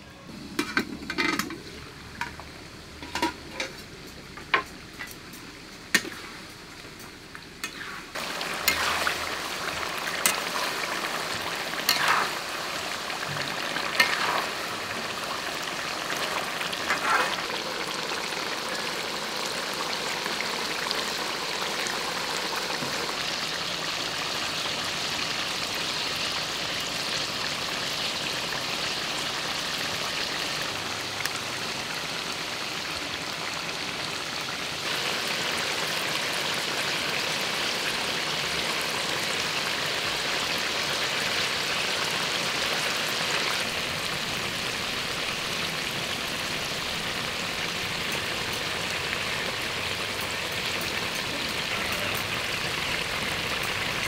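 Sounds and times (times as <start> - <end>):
chicken sizzling in a wok: 0.0 - 54.0
spatula stirring strokes: 7.6 - 17.6.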